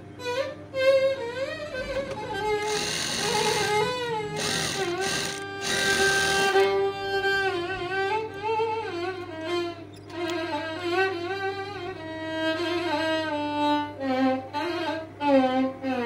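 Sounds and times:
violin melody music: 0:00.2 - 0:14.0
sewing machine running: 0:02.1 - 0:06.8.

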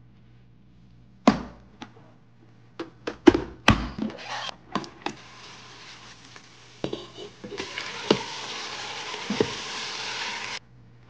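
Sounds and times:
faint sizzle: 0:05.1 - 0:10.7.

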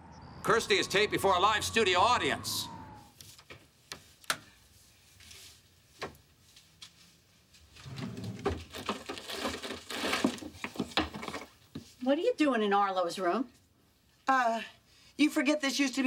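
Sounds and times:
paper rustling: 0:03.2 - 0:11.2.

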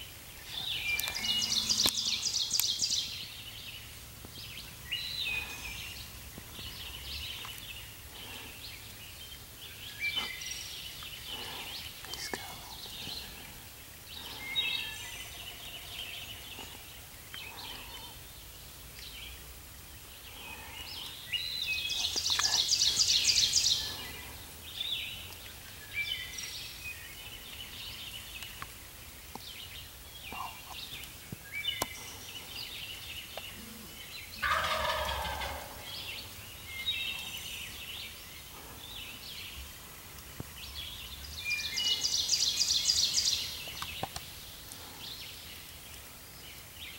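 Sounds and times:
turkey gobbling: 0:34.4 - 0:35.9.

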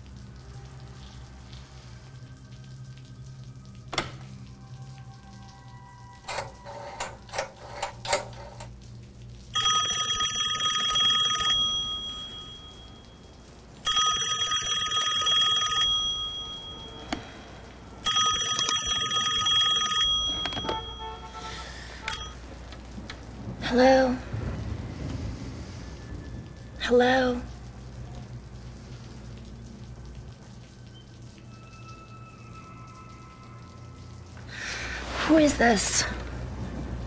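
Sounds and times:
desk telephone ringing: 0:09.6 - 0:13.1, 0:13.8 - 0:17.2, 0:18.0 - 0:21.4, 0:22.0 - 0:22.4.

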